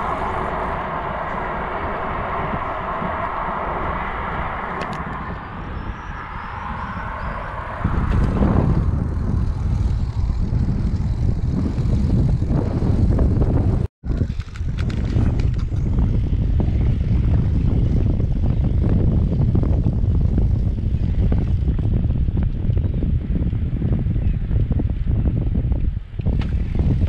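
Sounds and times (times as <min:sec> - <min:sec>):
steady hum: 0:00.0 - 0:13.8
bicycle tyre and road noise: 0:00.0 - 0:27.0
wind rumble on microphone: 0:00.0 - 0:27.0.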